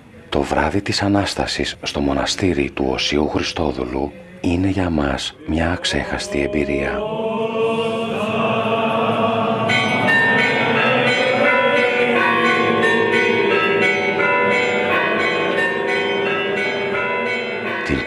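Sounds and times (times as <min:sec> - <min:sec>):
clergy chanting: 0:00.1 - 0:18.0
church bells pealing: 0:09.1 - 0:18.0.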